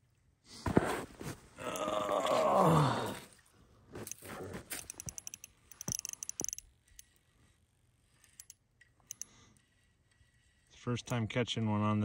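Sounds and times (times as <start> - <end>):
fishing reel clicking: 4.8 - 7.1, 8.2 - 9.4.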